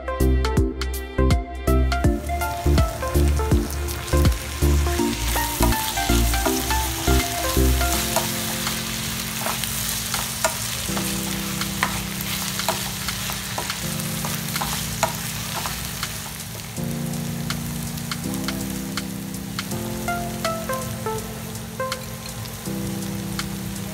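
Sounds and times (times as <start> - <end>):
soft background music: 0.0 - 23.9
vegetables sizzling in oil: 2.2 - 23.9.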